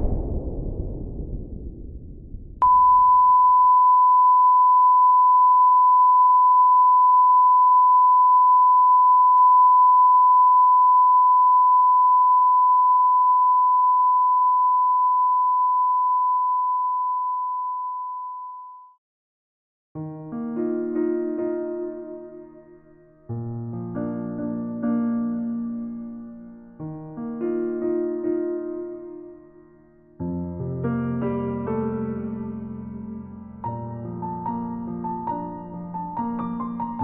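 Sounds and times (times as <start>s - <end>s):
low rumble: 0.0s - 3.2s.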